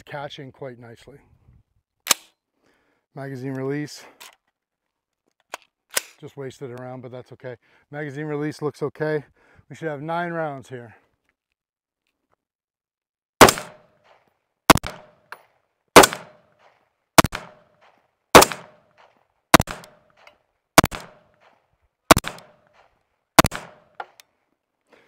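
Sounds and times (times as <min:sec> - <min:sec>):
rifle shots with echo: 0:13.4 - 0:15.4, 0:16.0 - 0:24.2.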